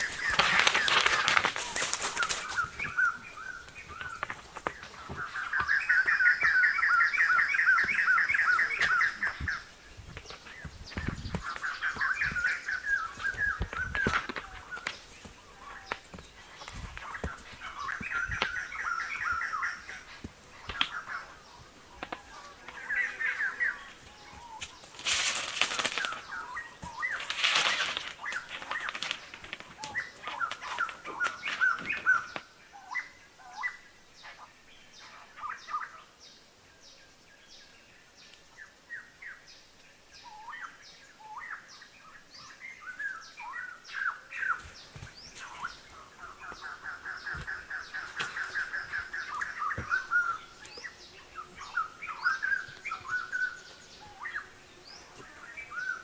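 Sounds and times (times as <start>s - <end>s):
bird trill: 0.0s - 9.7s, 10.9s - 15.0s, 25.7s - 34.4s, 45.3s - 56.0s
small birds chirping: 0.0s - 56.0s.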